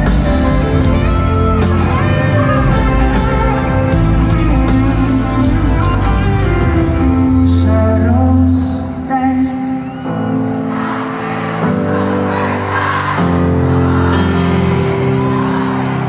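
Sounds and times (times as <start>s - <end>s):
crowd cheering and singing along: 0.0s - 16.0s
live pop-rock band: 0.0s - 16.0s
man singing: 1.7s - 10.1s.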